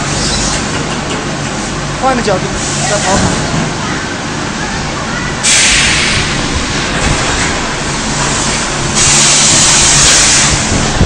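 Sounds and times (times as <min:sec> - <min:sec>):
machine hum: 0:00.0 - 0:11.0
loud air hissing bursts: 0:05.4 - 0:11.0.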